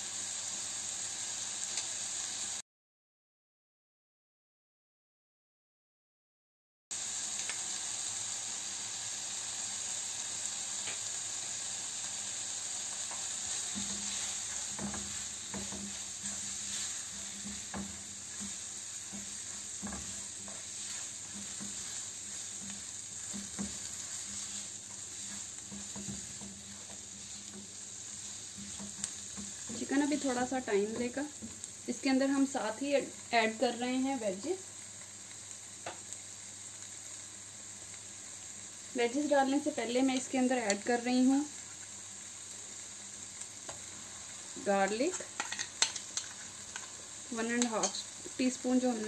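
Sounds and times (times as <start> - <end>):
food sizzling in a frying pan: 0.0 - 2.6, 6.9 - 49.0
spatula scraping and tapping pan: 13.0 - 31.7, 44.8 - 48.4.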